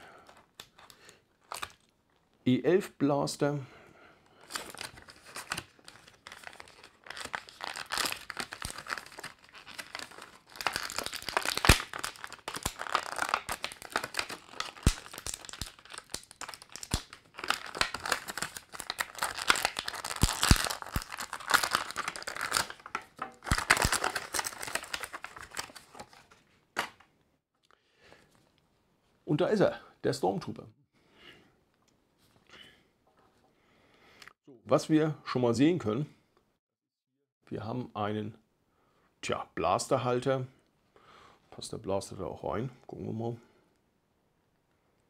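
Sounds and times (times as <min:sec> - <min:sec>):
plastic packaging crinkling: 0:04.4 - 0:27.0.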